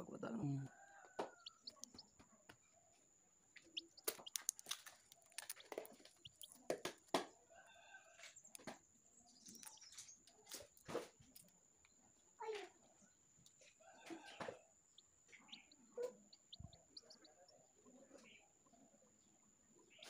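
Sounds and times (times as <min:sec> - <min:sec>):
fingers clicking on eggshell: 0:01.2 - 0:02.1, 0:03.8 - 0:07.3, 0:09.4 - 0:10.8
chick peeping: 0:01.2 - 0:02.2, 0:03.7 - 0:06.8, 0:14.0 - 0:18.5.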